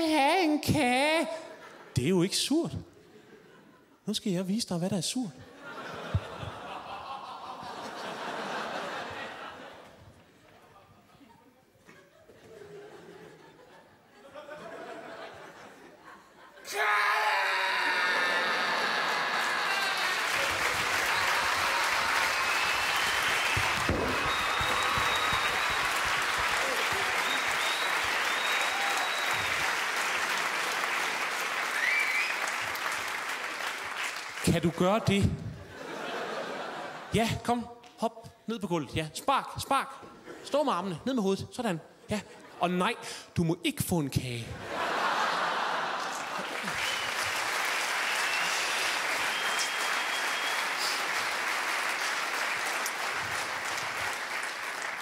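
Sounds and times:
audience applauding: 17.8s - 35.1s, 44.9s - 55.0s
high whistles: 20.5s - 29.8s, 31.6s - 32.6s, 46.7s - 51.2s.

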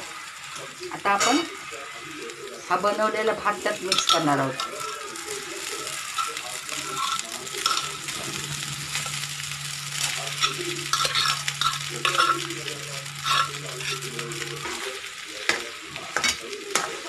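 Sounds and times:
spoon scraping and stirring in pan: 3.6s - 5.0s, 5.9s - 9.2s, 10.1s - 17.0s.

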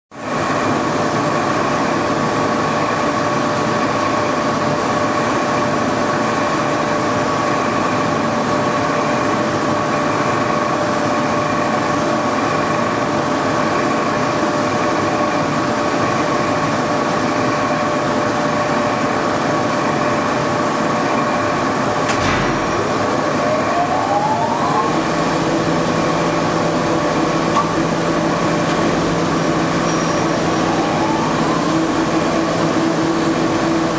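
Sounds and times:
motor whine: 22.6s - 33.9s.

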